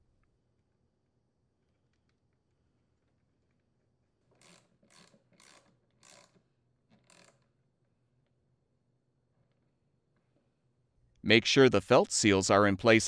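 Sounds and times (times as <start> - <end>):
socket ratchet clicking: 7.0 - 7.5.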